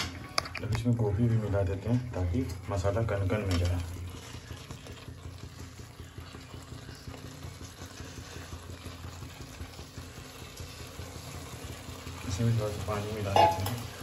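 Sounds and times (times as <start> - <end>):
gravy bubbling in a pan: 0.0 - 14.0.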